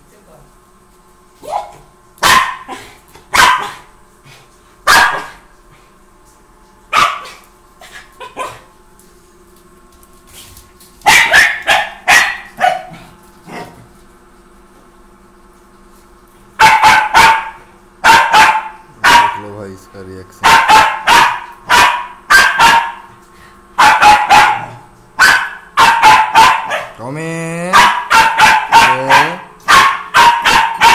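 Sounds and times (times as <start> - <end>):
dog barking: 1.4 - 3.9, 4.8 - 5.4, 6.9 - 7.4, 8.2 - 8.7, 11.0 - 13.8, 16.6 - 19.5, 20.4 - 23.1, 23.8 - 27.0, 27.7 - 30.9.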